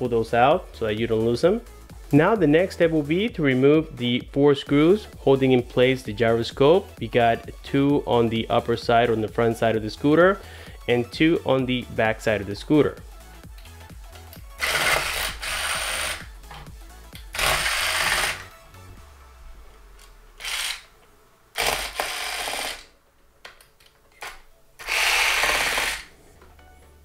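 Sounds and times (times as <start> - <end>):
electric screwdriver spinning: 14.3 - 16.3, 17.2 - 18.6, 20.0 - 20.9, 21.6 - 22.9, 24.8 - 26.2.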